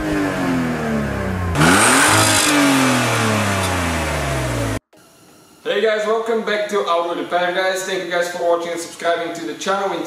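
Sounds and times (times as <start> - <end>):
car engine revving: 0.0 - 4.8.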